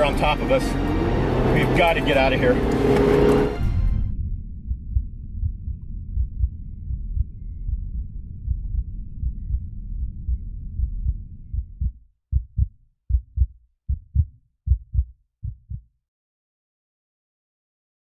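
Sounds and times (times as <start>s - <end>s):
low rumble: 0.0s - 15.8s
heartbeat thumps: 2.6s - 16.0s.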